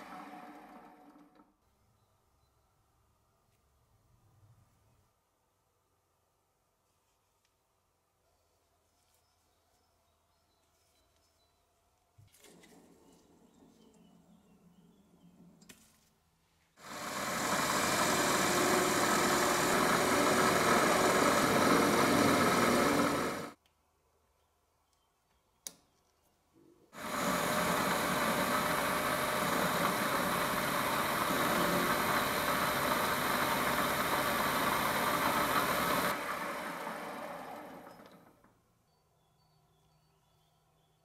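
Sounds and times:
metal lathe cutting: 16.8 - 23.6, 27.0 - 38.0.

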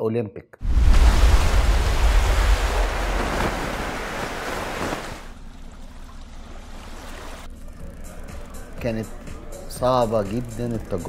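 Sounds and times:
heavy low rumble: 0.6 - 4.0
sea surf rushing: 0.6 - 5.4
wind: 0.6 - 7.6.

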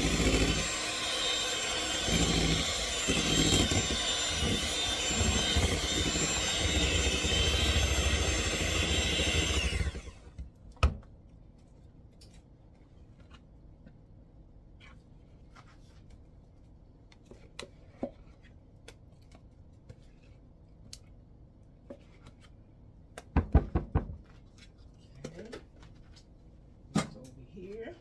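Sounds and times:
spatula scraping plastic tub: 0.0 - 9.7.

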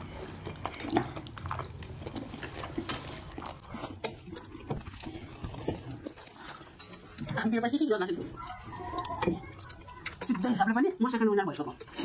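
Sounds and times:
people chewing: 0.0 - 12.0.

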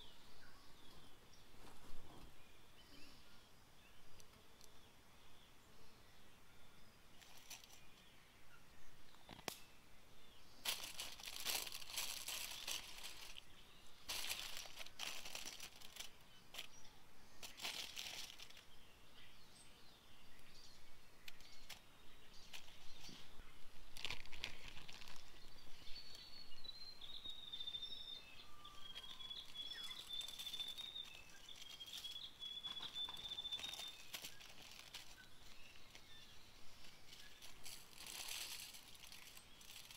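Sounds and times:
aluminium foil crinkling: 7.2 - 7.9, 10.6 - 16.8, 17.4 - 18.7, 21.2 - 21.8, 22.4 - 23.2, 23.8 - 26.3, 28.5 - 39.9.

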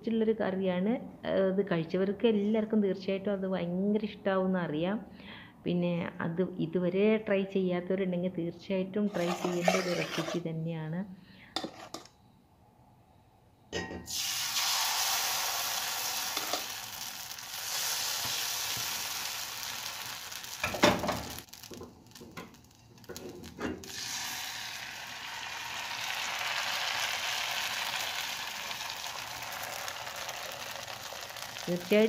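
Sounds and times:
batter sizzling in a pan: 9.1 - 10.4, 14.1 - 32.0.

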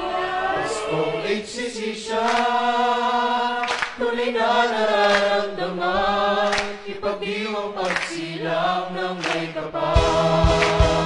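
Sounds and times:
choir singing: 0.0 - 11.0
bass: 10.0 - 11.0
drum beat: 10.0 - 11.0.

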